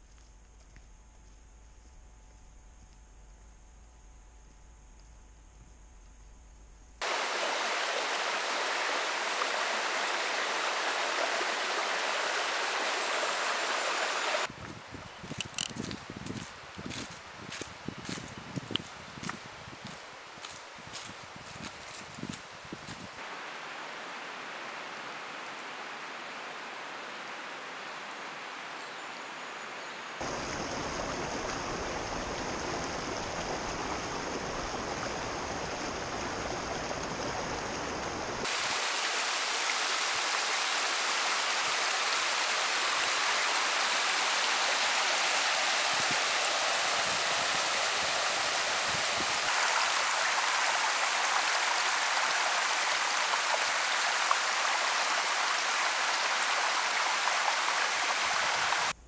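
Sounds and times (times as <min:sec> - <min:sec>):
stream water rushing: 0:07.0 - 0:14.6, 0:15.2 - 0:59.0.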